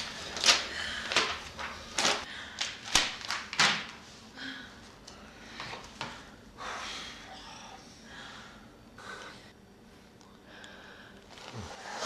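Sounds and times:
faint heavy breathing: 4.3 - 9.6.

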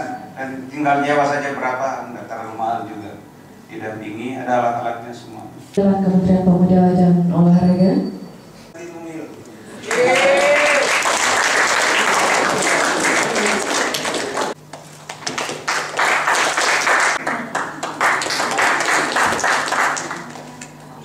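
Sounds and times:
audience applauding: 9.8 - 20.8.

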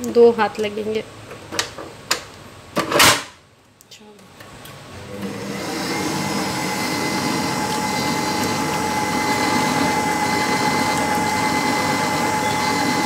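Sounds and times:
stand mixer motor whining: 5.0 - 13.0
beater whipping batter in bowl: 5.2 - 13.0.

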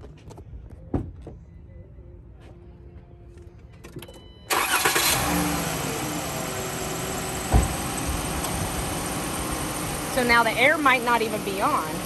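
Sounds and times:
van engine starting and idling: 4.5 - 12.0
low thump: 7.4 - 8.2.

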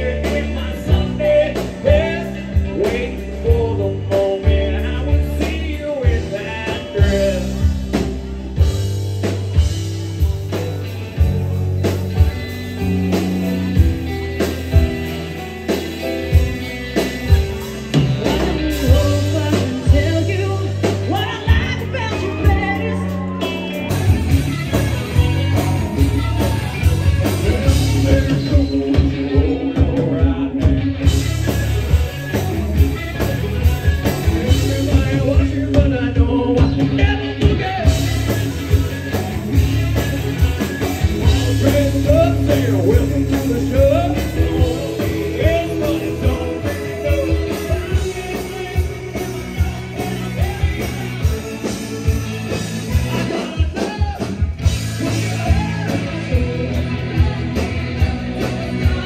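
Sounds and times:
rock band playing: 0.0 - 59.0
woman singing lead: 18.2 - 24.2.

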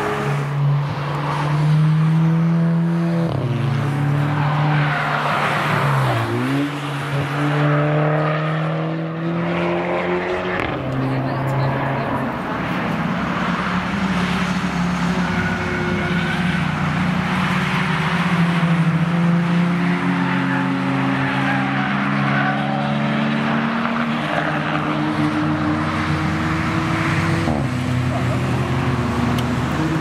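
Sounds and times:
race cars passing at speed: 0.0 - 30.0.

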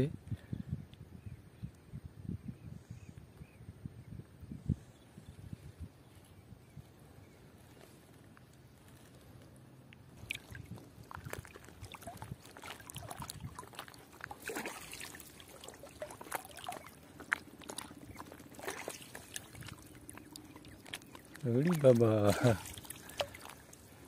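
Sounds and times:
water splashing and trickling: 10.0 - 24.0.

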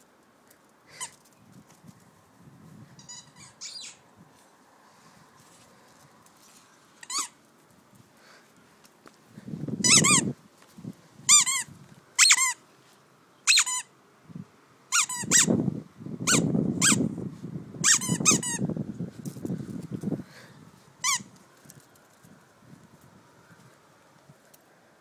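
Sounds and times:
rubber squeaky toy squeaking: 3.0 - 4.0, 7.0 - 7.3, 9.8 - 10.3, 11.3 - 12.6, 13.5 - 13.9, 14.9 - 15.5, 16.3 - 17.0, 17.8 - 18.6, 21.0 - 21.3.

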